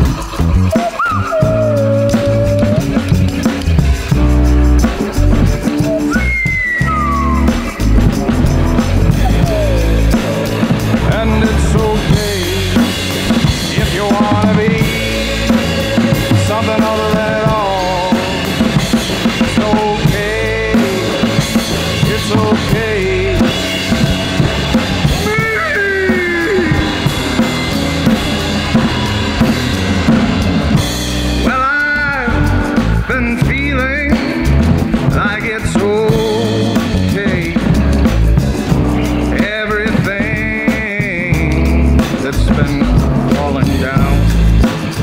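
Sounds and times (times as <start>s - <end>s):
bass: 0.0s - 45.0s
drum kit beat: 0.0s - 45.0s
lead line bending in pitch: 20.7s - 31.6s.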